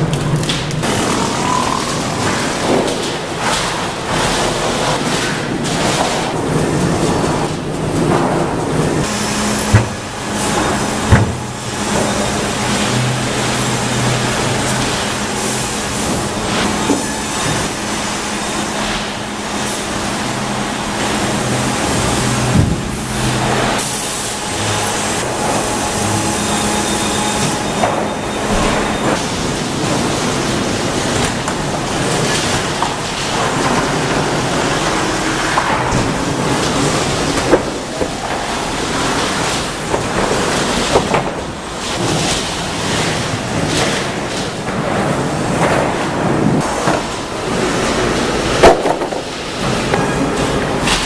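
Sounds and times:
machinery hum: 0.0s - 51.0s
boards knocking and clattering: 9.7s - 12.2s, 31.1s - 51.0s.

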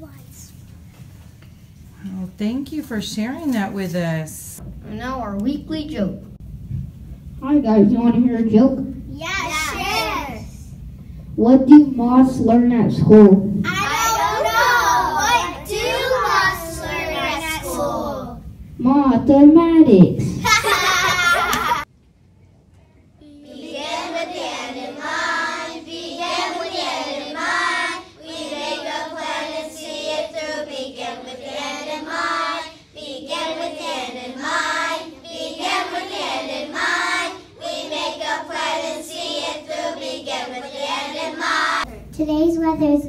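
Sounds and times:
young children singing in unison: 13.7s - 18.4s, 23.2s - 41.9s.

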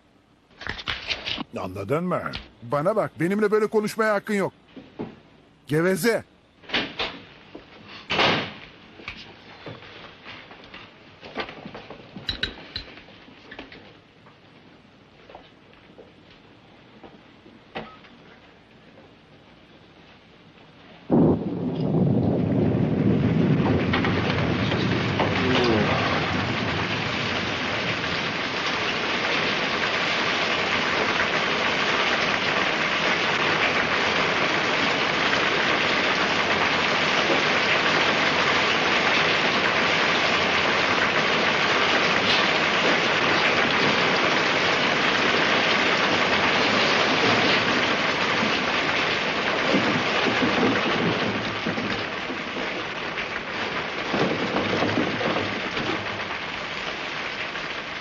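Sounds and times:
heavy rain pouring: 1.5s - 4.5s, 21.1s - 58.0s.

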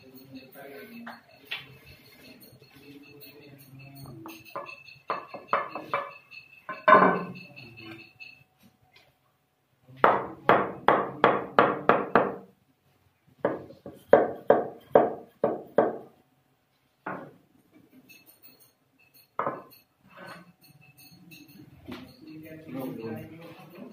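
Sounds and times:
hammer knocking on stone: 4.6s - 6.1s, 6.7s - 7.3s, 10.0s - 12.4s, 13.4s - 16.1s.

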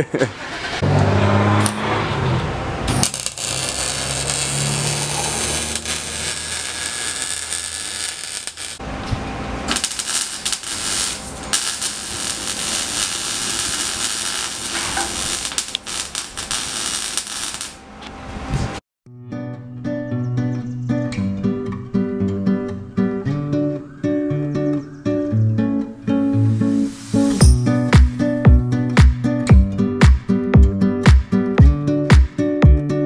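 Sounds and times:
welder crackling: 2.9s - 17.9s.

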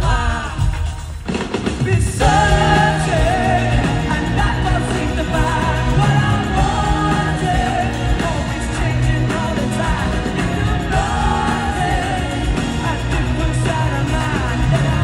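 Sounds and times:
pop-rock band playing live: 0.0s - 15.0s
man singing: 1.8s - 15.0s
heavy held bass notes: 2.1s - 15.0s.

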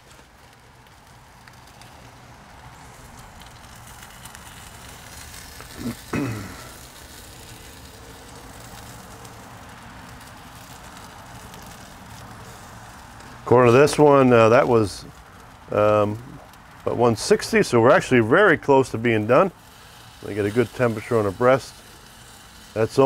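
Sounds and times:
charcoal fire crackling and hissing: 0.0s - 23.0s.

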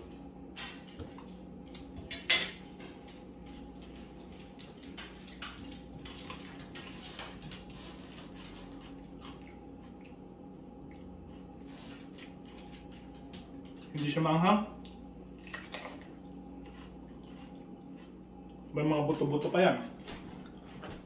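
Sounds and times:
cutlery clinking on a ceramic plate: 2.0s - 2.7s.

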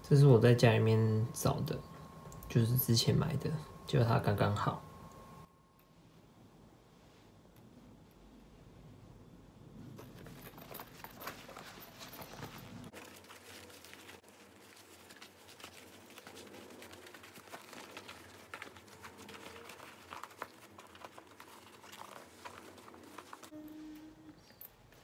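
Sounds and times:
leather and fabric rustling: 9.8s - 25.0s.

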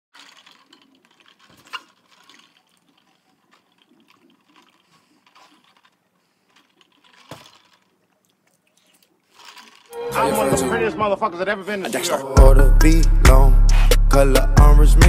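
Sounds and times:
slurping through a straw: 0.1s - 10.0s.

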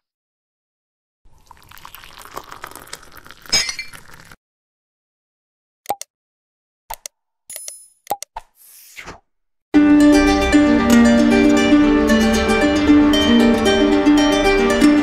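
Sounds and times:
eggshell cracking: 1.7s - 4.4s.

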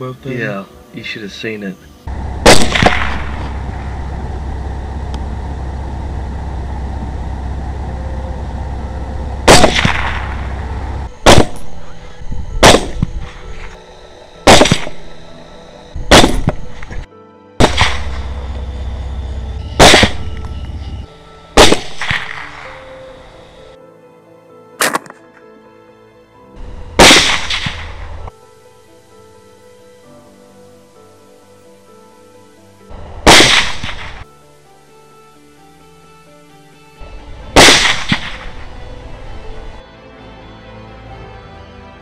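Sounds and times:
rifle shots: 2.3s - 3.8s, 9.4s - 11.7s, 12.6s - 13.2s, 14.4s - 15.1s, 16.1s - 16.8s, 17.6s - 18.4s, 19.8s - 20.3s, 21.6s - 22.8s, 24.8s - 25.2s, 27.0s - 28.2s, 33.2s - 34.2s, 37.6s - 38.7s.

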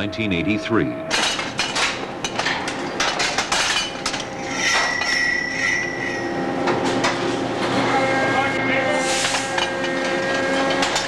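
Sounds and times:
metal clanking and banging: 1.1s - 5.5s, 9.2s - 11.0s
high-pitched squeal: 4.4s - 6.6s.

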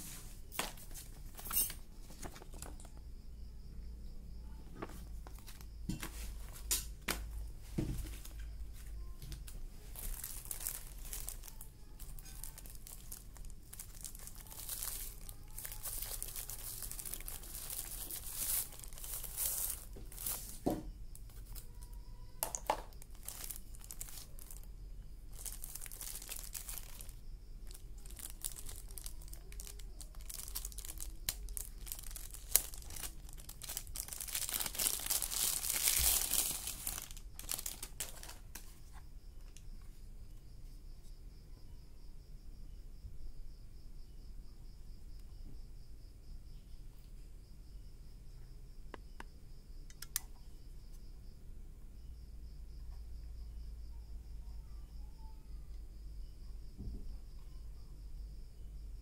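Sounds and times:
plastic wrapping crinkling: 0.0s - 3.0s, 4.8s - 38.8s
sharp clicks: 49.9s - 50.4s.

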